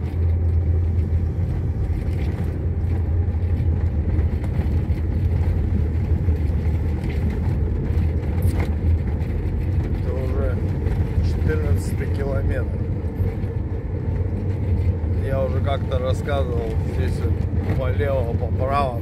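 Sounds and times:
truck engine droning: 0:00.0 - 0:19.0
tyres rumbling on gravel: 0:00.0 - 0:19.0.

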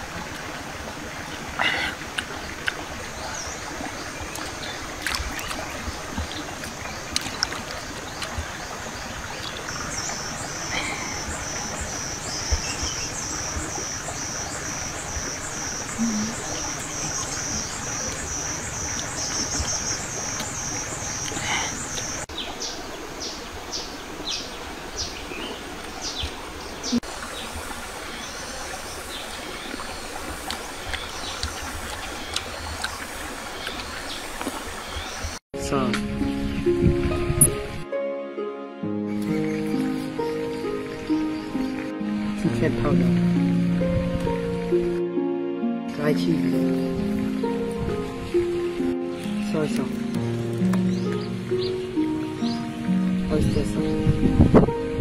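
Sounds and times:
steady outdoor hiss: 0:00.0 - 0:55.0
insect chirping: 0:02.4 - 0:35.4.

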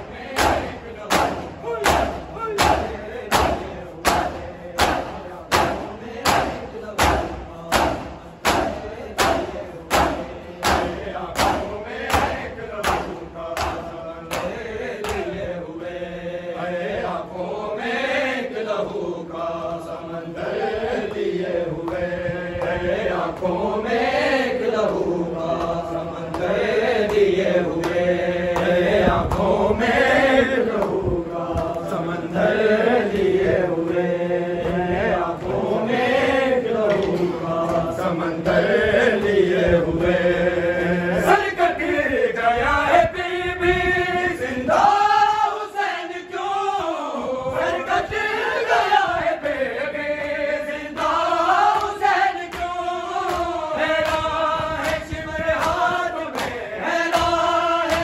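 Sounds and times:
crowd beating chests: 0:00.0 - 0:15.4
men chanting in unison: 0:00.0 - 0:58.0.

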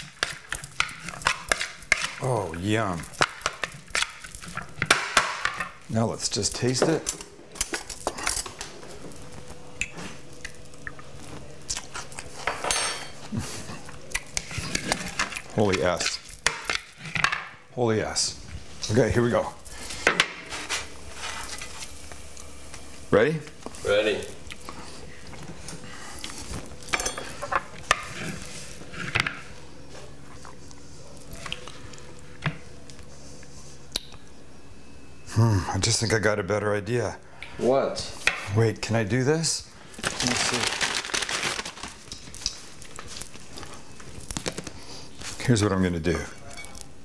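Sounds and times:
quiet chewing: 0:09.8 - 0:12.4
utensils clinking against bowl: 0:12.4 - 0:13.2, 0:26.9 - 0:28.1.

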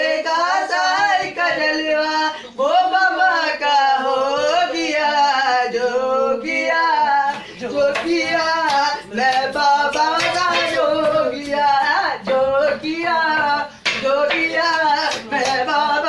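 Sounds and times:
men singing devotional song: 0:00.0 - 0:16.0
hand claps: 0:07.2 - 0:16.0.

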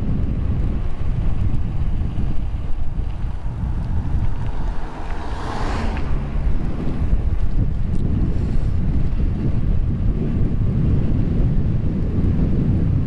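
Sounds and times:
wind rumbling on microphone: 0:00.0 - 0:13.0
car passing by: 0:03.1 - 0:08.9.

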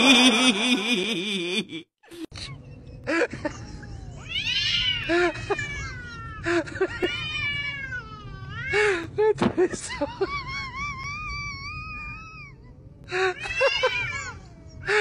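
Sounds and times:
cats yowling: 0:03.9 - 0:08.7, 0:10.3 - 0:15.0.

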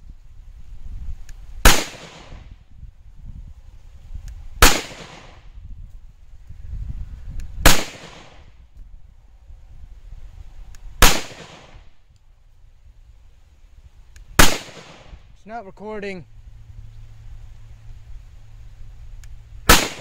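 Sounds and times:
pistol shots: 0:01.6 - 0:02.4, 0:04.6 - 0:05.4, 0:07.6 - 0:08.4, 0:11.0 - 0:11.9, 0:14.4 - 0:15.2, 0:19.7 - 0:20.0.

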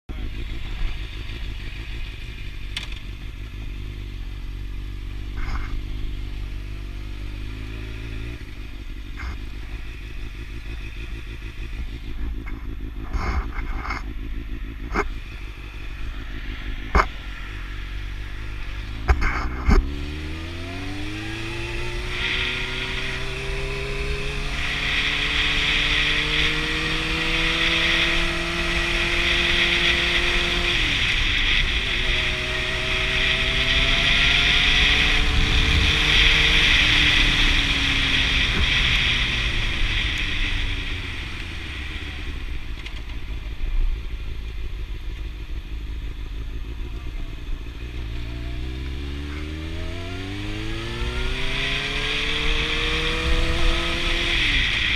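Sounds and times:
motorcycle engine: 0:00.0 - 0:54.9.

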